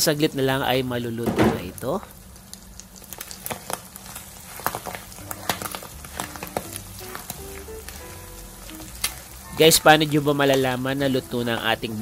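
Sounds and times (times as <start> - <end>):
meat popping in a pan: 1.3 - 12.0
spatula stirring: 2.8 - 12.0.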